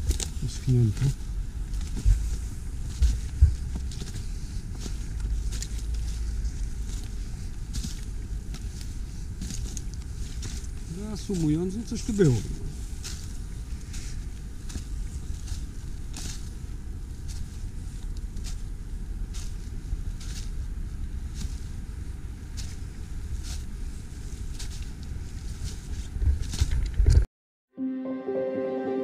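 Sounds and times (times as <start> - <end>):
footsteps on snowy ground: 0.0 - 18.6
steady low rumble: 0.0 - 24.6.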